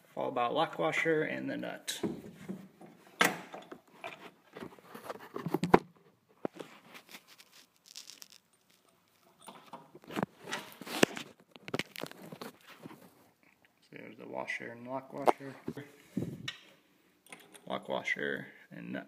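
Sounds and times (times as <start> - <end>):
metal washers and nut clinking: 7.1 - 9.8.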